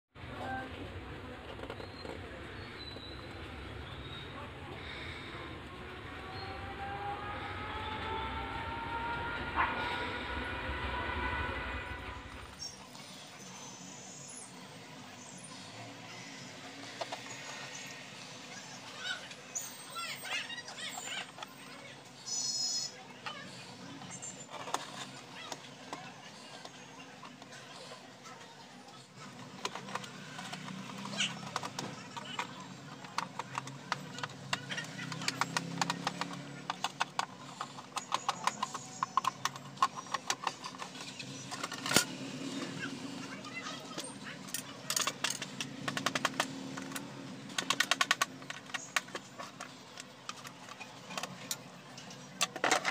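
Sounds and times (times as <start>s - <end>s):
plastic parts clicking together: 29.3s - 42.2s, 44.5s - 52.9s.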